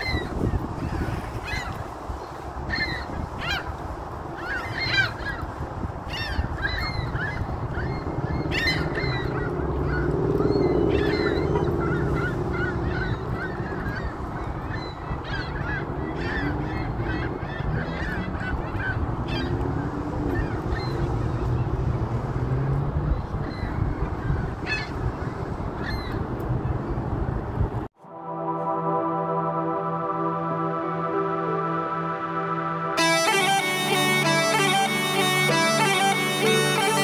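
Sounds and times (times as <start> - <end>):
gulls calling: 0.0 - 19.7, 28.2 - 37.0.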